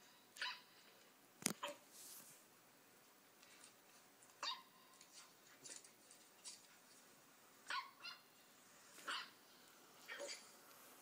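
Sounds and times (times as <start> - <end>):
puppy yipping: 0.4 - 0.6, 4.4 - 4.9, 7.7 - 8.3, 9.1 - 9.4.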